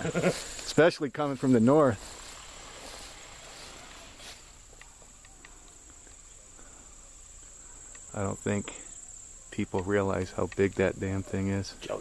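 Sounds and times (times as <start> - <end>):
insects trilling in grass: 0.0 - 12.0
soft ticks: 7.8 - 8.1, 9.7 - 10.8.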